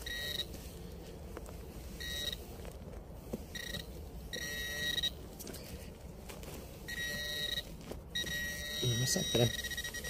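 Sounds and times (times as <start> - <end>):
metal detector beeps: 0.0 - 0.6, 2.0 - 2.5, 3.5 - 5.6, 6.9 - 10.0.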